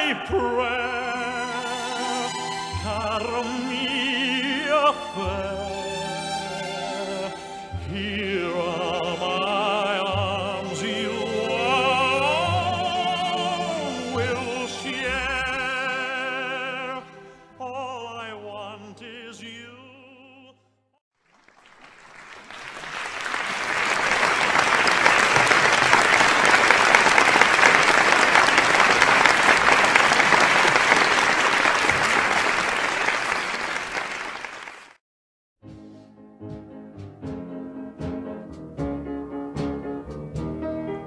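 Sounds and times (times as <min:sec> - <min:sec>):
operatic singing: 0:00.0 - 0:20.6
audience applause: 0:21.2 - 0:35.0.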